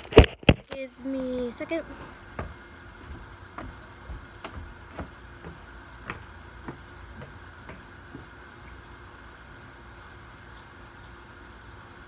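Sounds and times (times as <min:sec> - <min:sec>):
background hum: 0:00.0 - 0:12.0
footsteps walking: 0:01.9 - 0:08.8.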